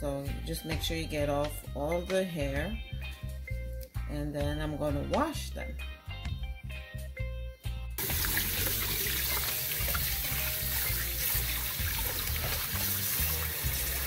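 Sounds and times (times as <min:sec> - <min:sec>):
background music with bass beat: 0:00.0 - 0:14.0
corn rinsed by hand: 0:08.0 - 0:14.0
tap water running into metal pot: 0:08.0 - 0:14.0.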